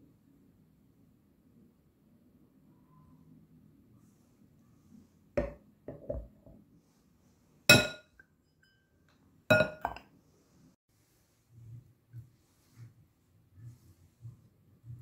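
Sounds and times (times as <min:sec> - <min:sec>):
dull knocks of glassware: 0:05.4 - 0:06.4, 0:07.7 - 0:08.1, 0:09.5 - 0:10.0
ringing glass clink: 0:07.7 - 0:08.9, 0:09.5 - 0:10.0.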